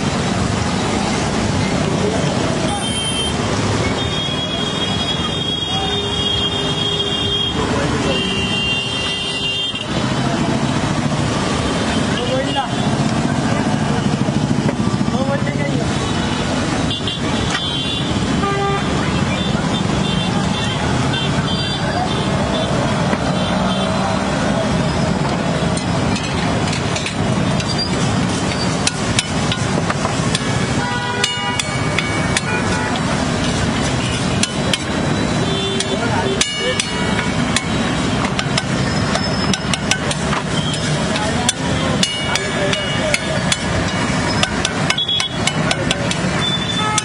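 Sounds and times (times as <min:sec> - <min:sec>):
street noise: 0:00.0 - 0:47.0
metal spatula clanging on griddle: 0:35.8 - 0:47.0.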